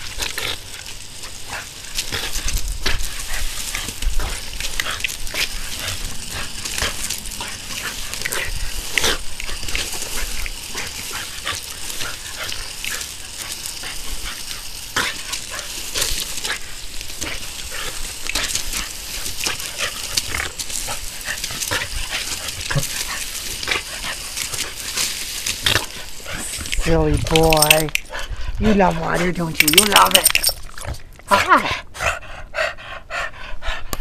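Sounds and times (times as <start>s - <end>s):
hose spray hissing: 0.0s - 30.1s
dog sounds: 0.0s - 34.0s.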